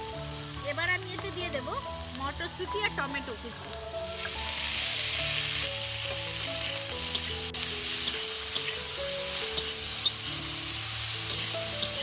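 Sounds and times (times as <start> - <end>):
background music with held notes: 0.0 - 12.0
vegetables sizzling in oil: 0.0 - 12.0
metal spatula clicking on pan: 9.5 - 10.2.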